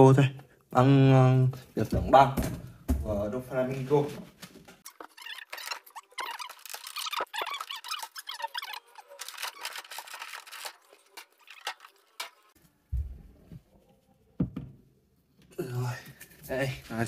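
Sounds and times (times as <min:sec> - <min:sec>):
plastic packaging crinkling and squeaking: 0:04.8 - 0:12.6.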